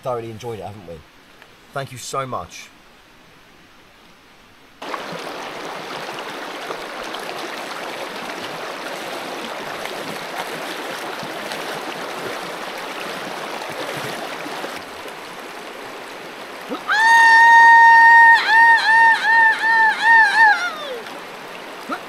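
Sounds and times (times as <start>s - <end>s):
river rushing over rocks: 4.8s - 22.0s.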